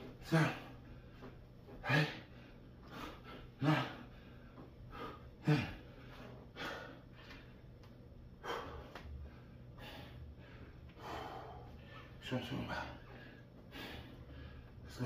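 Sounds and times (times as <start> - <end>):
man grunting: 0.2 - 0.8, 3.6 - 4.1, 5.4 - 5.9.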